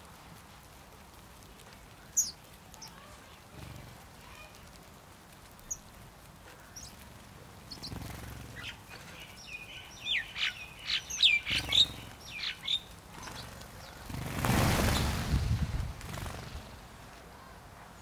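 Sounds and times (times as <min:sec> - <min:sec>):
sparrows chirping: 0:01.4 - 0:15.2
wingbeats of flock taking off: 0:07.7 - 0:08.8, 0:10.1 - 0:17.1.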